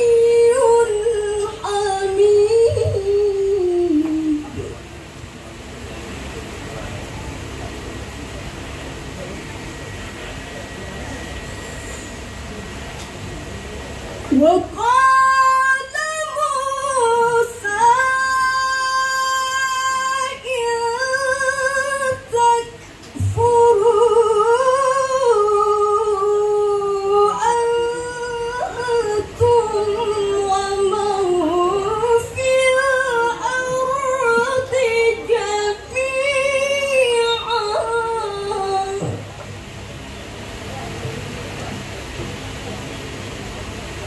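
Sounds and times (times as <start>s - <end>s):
woman reciting melodically: 0.0s - 4.8s, 14.3s - 39.3s.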